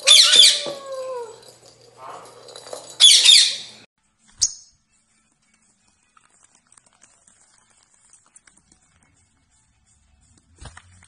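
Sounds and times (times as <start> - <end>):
parakeet screech: 0.0 - 0.7.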